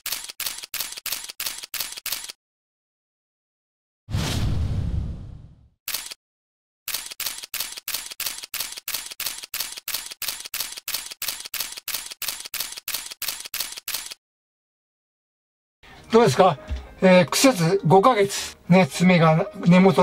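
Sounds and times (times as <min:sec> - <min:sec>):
camera shutter clicking: 0:00.0 - 0:02.4, 0:05.9 - 0:06.2, 0:06.9 - 0:14.2.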